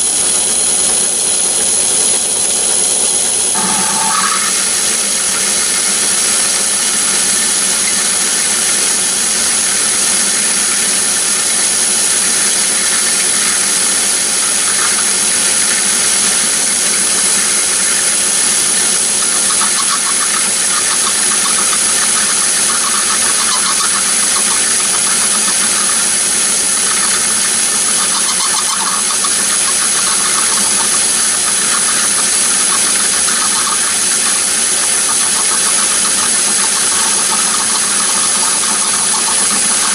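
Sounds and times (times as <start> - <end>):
lathe high whine: 0.0 - 39.9.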